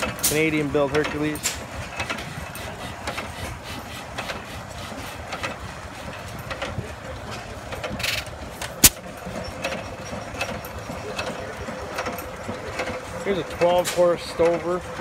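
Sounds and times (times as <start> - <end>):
stationary engines clicking and knocking: 0.0 - 15.0.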